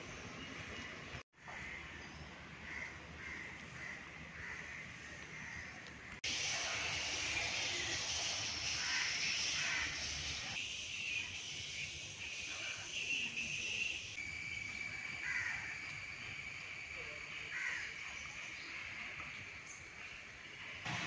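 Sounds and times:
high-pitched hiss: 6.2s - 21.0s
thin steady high tone: 6.3s - 20.8s.

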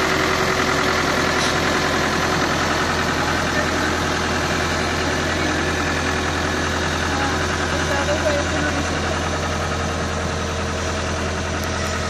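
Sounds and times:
excavator diesel engine humming: 0.0s - 12.0s.

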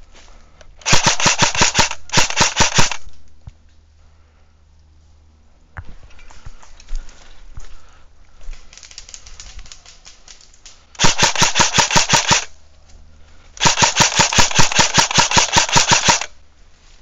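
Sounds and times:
airsoft gun firing full auto: 0.8s - 3.1s, 11.0s - 12.5s, 13.6s - 16.4s.

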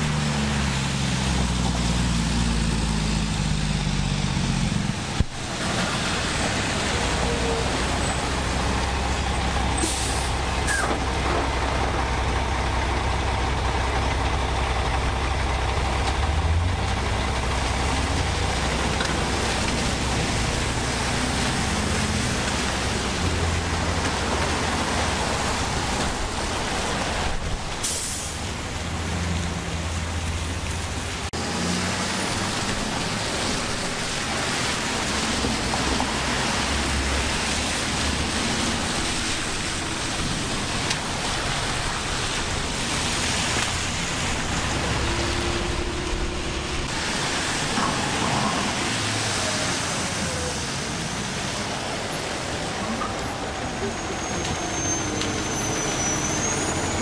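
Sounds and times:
rain hissing: 0.0s - 57.0s
tyres on wet road: 0.0s - 57.0s
passing car engines humming: 28.8s - 57.0s.

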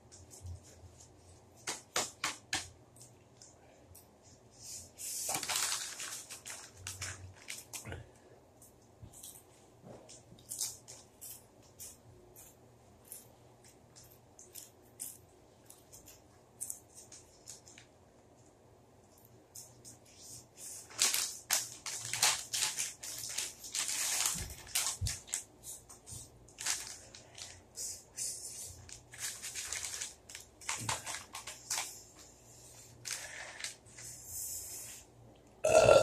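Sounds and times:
chip bag crinkling: 5.1s - 7.9s, 20.6s - 25.8s, 26.5s - 28.0s, 28.6s - 32.0s.

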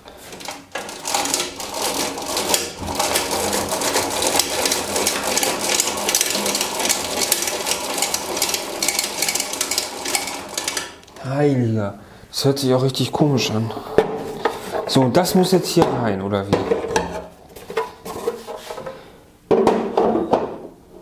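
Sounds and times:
hand crank rattling and clicking: 0.3s - 11.2s.

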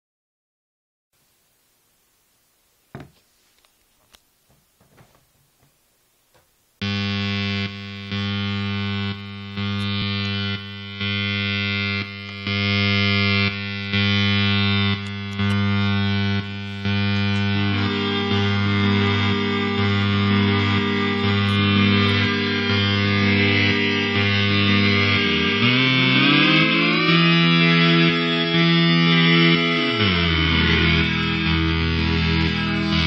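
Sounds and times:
buzzy distorted electronic drone: 6.8s - 33.0s.

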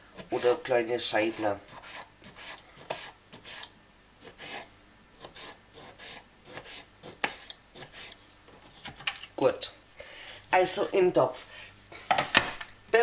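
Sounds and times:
knife cutting potato on board: 0.2s - 9.1s.

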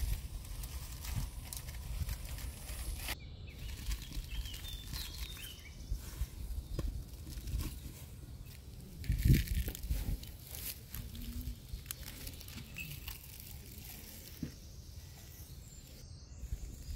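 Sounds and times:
flatbread rustling: 0.0s - 15.4s
bird chirps: 2.3s - 8.8s, 11.0s - 16.9s.

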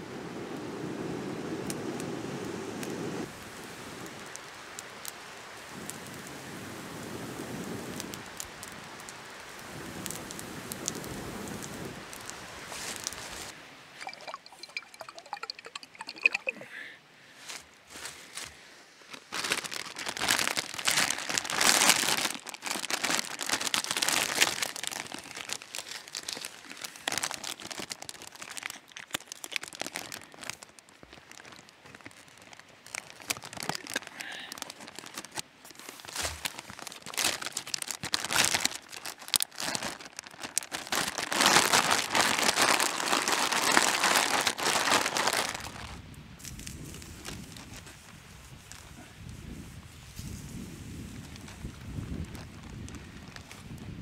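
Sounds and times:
plastic bag crinkling: 14.0s - 16.5s, 19.1s - 47.4s.

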